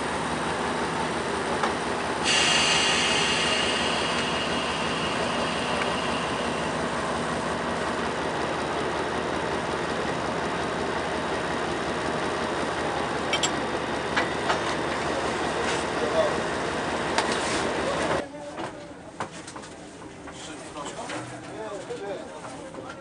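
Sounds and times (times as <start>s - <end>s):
high whine: 0.0s - 9.4s
locomotive engine idling: 0.0s - 18.2s.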